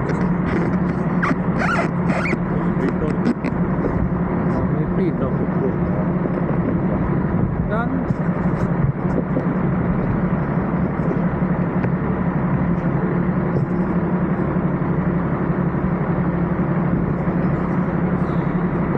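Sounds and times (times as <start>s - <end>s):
engine running low drone: 0.0s - 18.9s.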